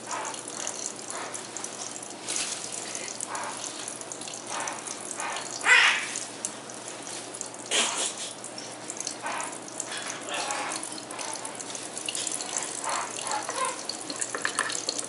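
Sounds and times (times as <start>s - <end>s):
parrot bathing bursts: 0.0s - 14.2s
faucet stream splashing into sink: 0.0s - 15.0s.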